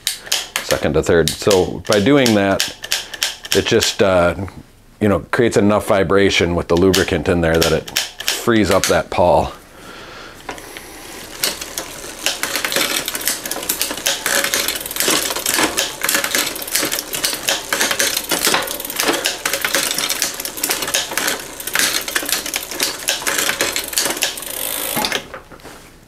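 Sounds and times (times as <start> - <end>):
bicycle drivetrain clicking: 10.4 - 25.4.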